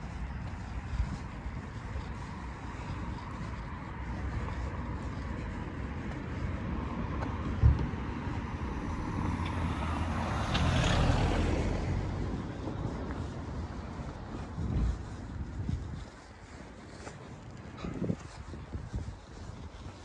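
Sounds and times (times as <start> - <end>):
steady low rumble: 0.0 - 9.4, 11.3 - 20.0
car passing: 0.2 - 15.6
low thump: 7.6 - 8.0.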